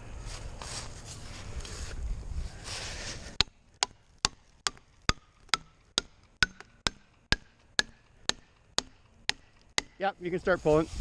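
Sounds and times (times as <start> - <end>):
wedges being pounded: 3.4 - 10.0.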